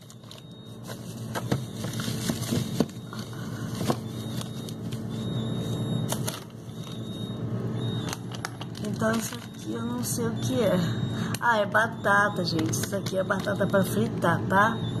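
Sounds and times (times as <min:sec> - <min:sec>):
plastic bags crinkling: 0:00.0 - 0:05.2, 0:08.0 - 0:09.8
steady low hum: 0:00.0 - 0:15.0.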